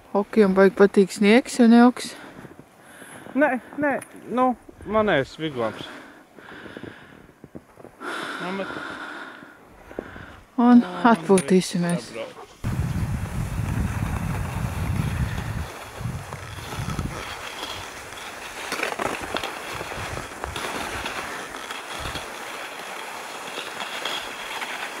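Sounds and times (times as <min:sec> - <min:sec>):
scraping hiss on packed snow: 0:02.2 - 0:08.6, 0:12.1 - 0:25.0.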